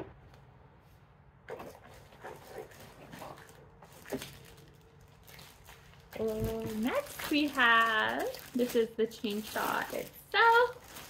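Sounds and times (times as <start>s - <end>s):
plastic bag crinkling: 2.2s - 11.0s.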